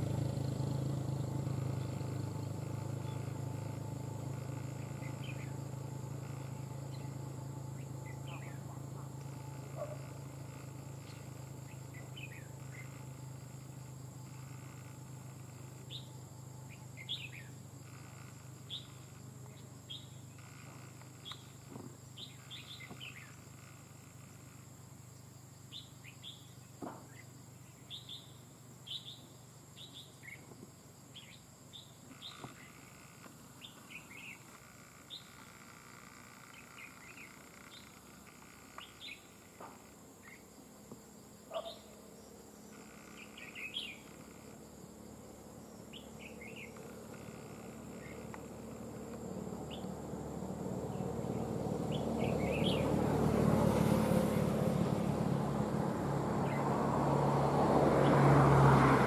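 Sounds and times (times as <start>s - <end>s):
bird chirps: 1.1s - 23.8s, 25.7s - 30.5s, 31.1s - 40.5s, 41.5s - 44.5s, 45.6s - 48.4s, 49.6s - 50.0s, 50.9s - 53.0s.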